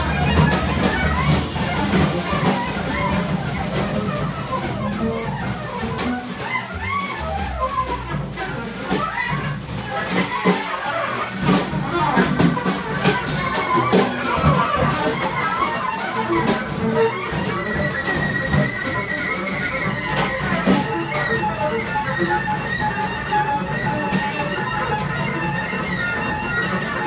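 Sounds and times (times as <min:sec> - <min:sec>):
drum kit with cymbal crashes: 0:00.0 - 0:06.6
double bass: 0:00.0 - 0:27.0.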